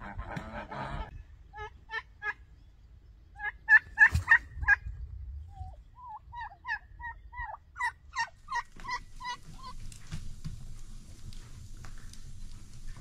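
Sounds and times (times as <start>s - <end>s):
turkeys calling: 0.0s - 4.9s, 5.5s - 13.0s.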